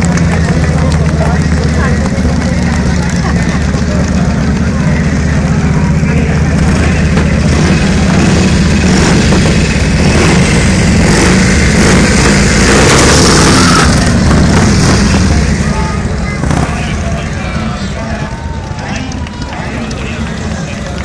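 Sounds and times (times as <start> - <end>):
motorcycle engines running loudly: 0.0 - 21.0.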